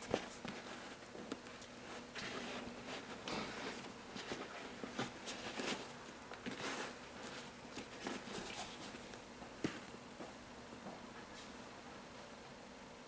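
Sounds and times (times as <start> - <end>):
fingers rustling on shoe: 0.0 - 9.2.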